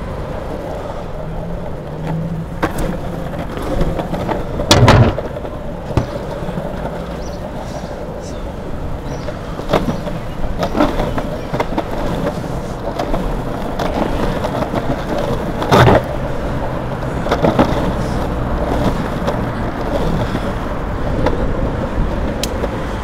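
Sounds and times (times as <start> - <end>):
longboard wheels rolling on asphalt: 0.0 - 23.0
clicks and knocks: 2.6 - 6.9
short thump: 4.7 - 6.2.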